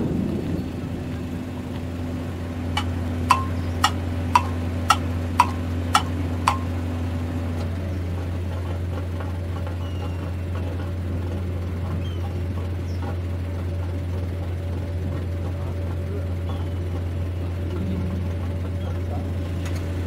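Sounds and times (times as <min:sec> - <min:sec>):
engine droning: 0:00.0 - 0:20.0
sharp metallic knocks: 0:02.7 - 0:06.8.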